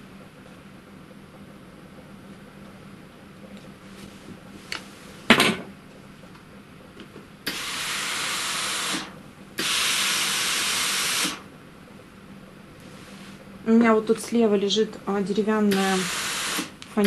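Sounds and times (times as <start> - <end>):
steam iron hissing: 7.5 - 11.4, 15.7 - 16.8.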